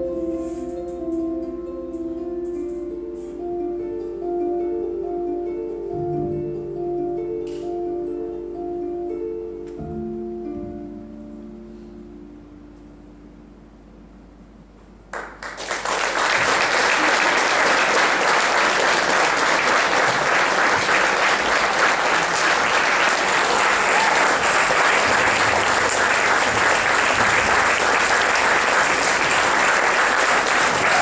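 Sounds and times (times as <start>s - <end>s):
audience applauding: 15.1s - 31.0s.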